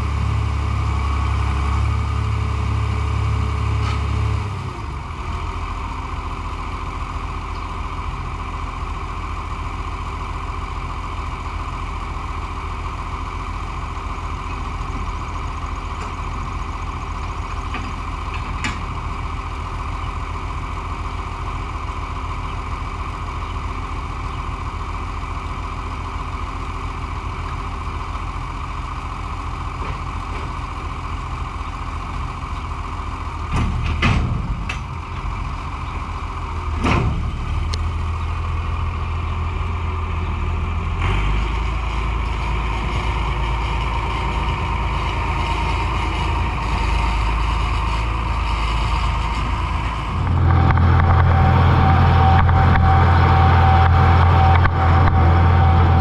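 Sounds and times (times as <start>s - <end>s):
tractor engine running: 0.0s - 56.0s
clunks and rattles: 17.5s - 19.1s, 33.4s - 36.0s, 36.6s - 38.0s.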